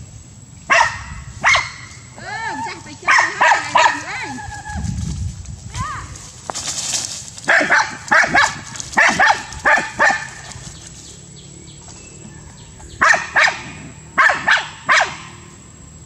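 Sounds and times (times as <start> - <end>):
small dog barking: 0.7 - 2.0, 3.0 - 4.2, 7.5 - 10.6, 13.0 - 15.4.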